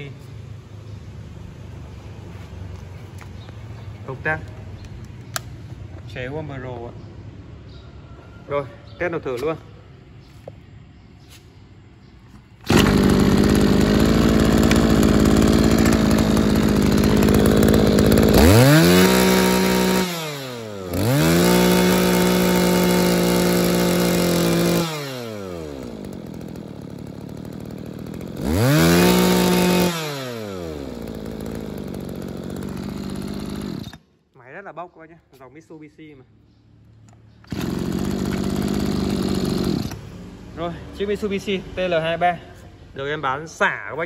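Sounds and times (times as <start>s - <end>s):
brush cutter engine revving: 12.6s - 34.0s, 37.2s - 41.3s.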